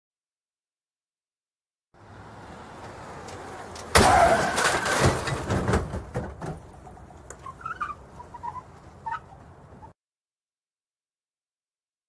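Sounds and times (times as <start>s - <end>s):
debris crunching and clattering: 3.3s - 6.8s.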